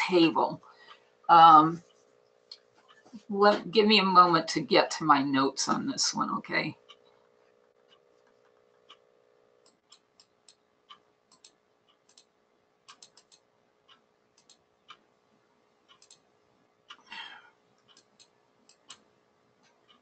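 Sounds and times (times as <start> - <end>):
faint steady hum: 0.0 - 20.0
computer mouse clicking: 9.6 - 12.3, 12.9 - 15.0, 15.9 - 16.3, 17.8 - 20.0.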